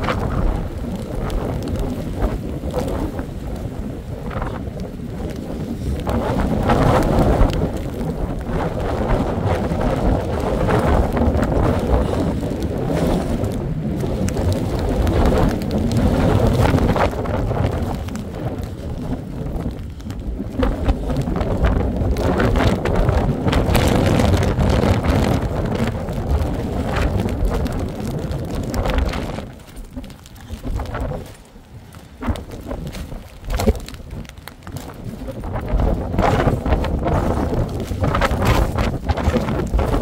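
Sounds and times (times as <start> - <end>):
strong wind buffeting microphone: 0.0 - 40.0.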